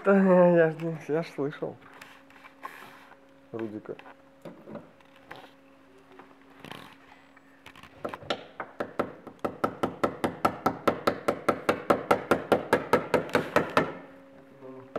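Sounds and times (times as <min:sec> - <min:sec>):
hammer tapping nails into wood: 0:08.3 - 0:14.0.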